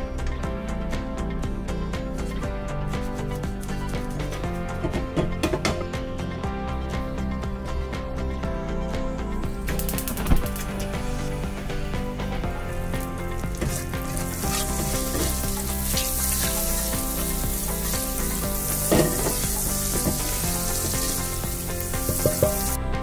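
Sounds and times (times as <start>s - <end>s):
butter sizzling in a pan: 12.8s - 22.8s
spatula knocking against pan: 18.9s - 19.4s, 22.1s - 22.7s.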